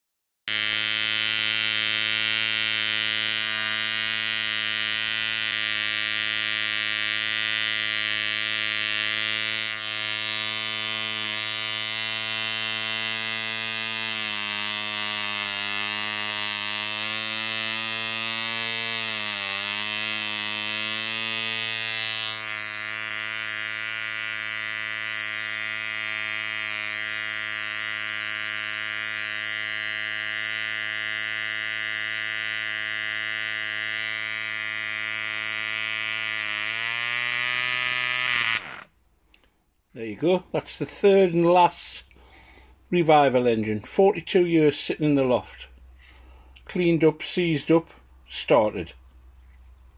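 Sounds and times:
model engine buzzing: 0:00.5 - 0:38.9.

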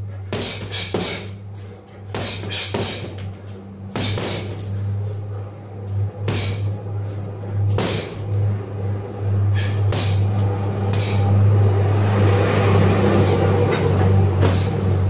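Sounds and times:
low hum: 0:00.0 - 0:15.0
punches thudding into heavy bag: 0:07.8 - 0:08.2.

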